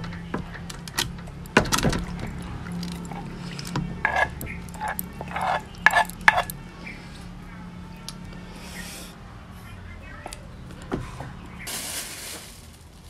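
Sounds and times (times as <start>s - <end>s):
wet food squelching: 2.2s - 6.5s
metal spoon scraping mortar: 2.8s - 6.5s.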